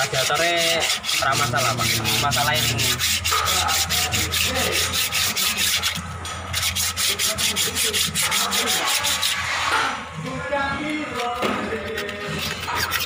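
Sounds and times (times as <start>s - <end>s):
steady low hum: 0.0s - 8.3s
rhythmic scraping: 0.0s - 13.0s.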